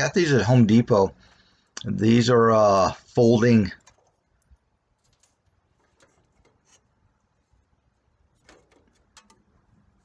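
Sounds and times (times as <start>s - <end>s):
faint clicks and knocks: 1.2s - 10.0s.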